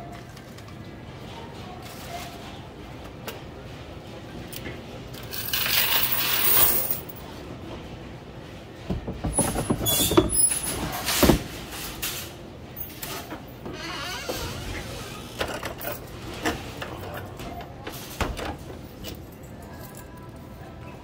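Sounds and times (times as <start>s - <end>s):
coins rattling in a cash box: 5.2s - 7.2s
knocks and clatter of box handling: 8.9s - 10.4s.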